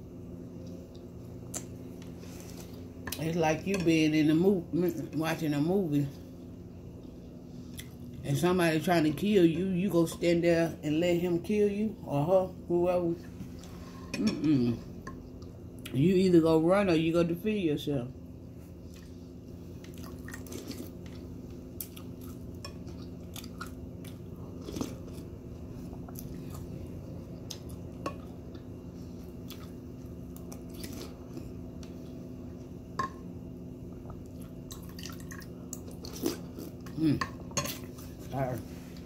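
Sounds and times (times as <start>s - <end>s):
steady low hum: 0.0s - 39.0s
chewing: 21.8s - 25.3s, 27.4s - 31.6s.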